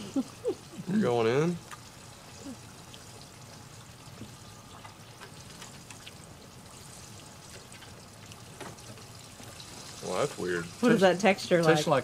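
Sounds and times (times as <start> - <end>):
trickling water: 0.0 - 12.0.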